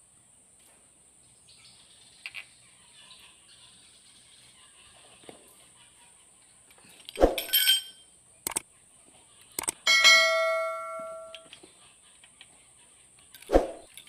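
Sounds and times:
hand tools clinking on metal: 7.4 - 8.0, 9.9 - 11.5
metal clang ringing: 7.4 - 8.0, 9.9 - 11.5.

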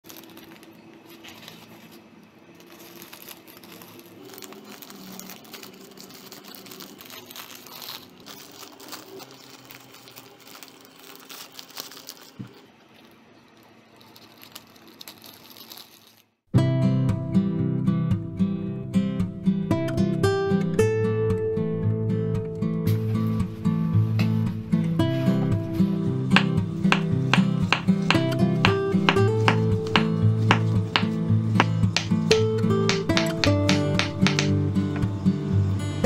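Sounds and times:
plastic bags crinkling: 0.0 - 16.4, 25.3 - 34.7.

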